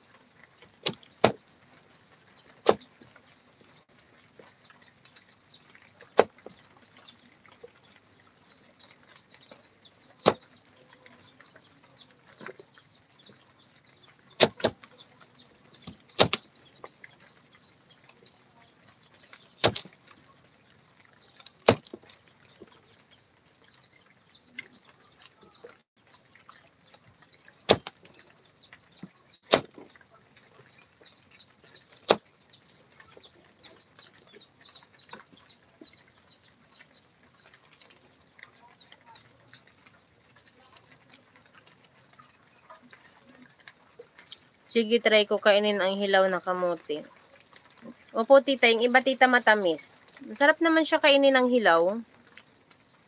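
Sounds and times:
faint steady background noise: 0.0s - 53.0s
sharp knocks: 15.9s - 16.5s.

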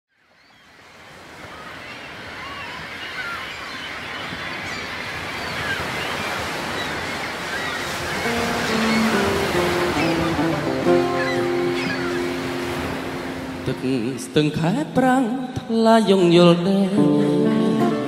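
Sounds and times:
ocean surf on shore: 0.3s - 18.0s
music: 8.2s - 14.1s, 16.4s - 18.0s.

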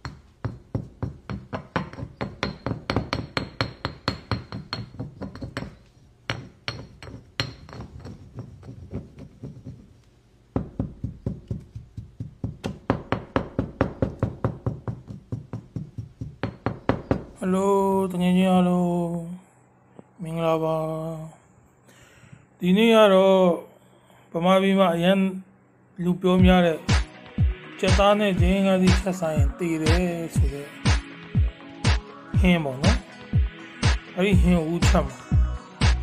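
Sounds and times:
stone pestle pounding in mortar: 0.0s - 9.9s, 10.5s - 17.4s.

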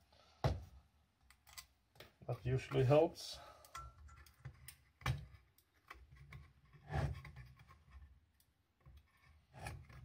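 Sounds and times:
small clicks and scrapes: 3.6s - 10.0s.

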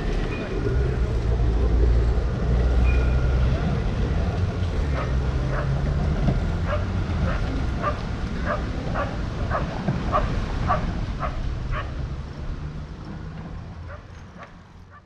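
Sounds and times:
low rumble: 0.0s - 13.9s
dog yipping: 6.7s - 11.9s.

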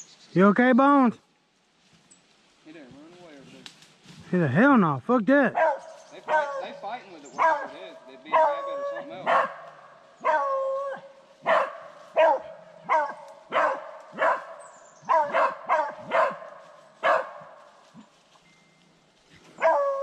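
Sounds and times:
dog barking sharply: 5.5s - 6.7s, 7.4s - 10.5s, 11.4s - 17.6s.

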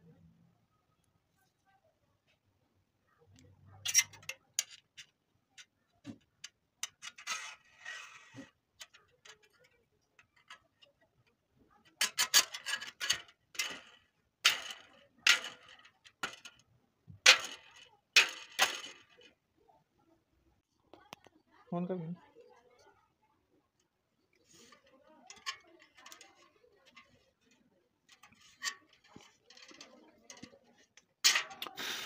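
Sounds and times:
metal can and wire rattling clicks: 28.1s - 31.8s.

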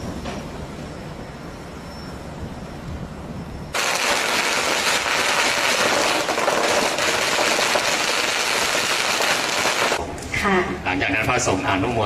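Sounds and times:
firecrackers crackling: 3.8s - 10.0s.

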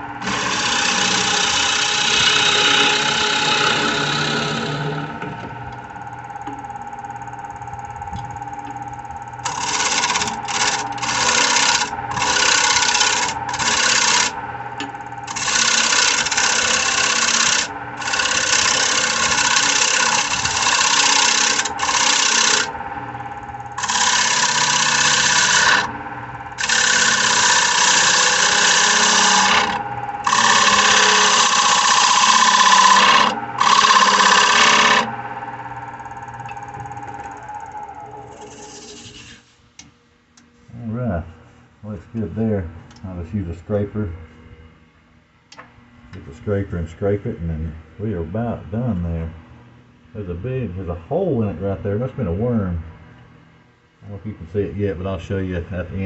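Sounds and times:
lathe motor humming: 0.0s - 39.4s
gouge rasping on wood: 0.2s - 4.8s, 9.5s - 14.4s, 15.3s - 22.7s, 23.8s - 25.9s, 26.6s - 35.1s.

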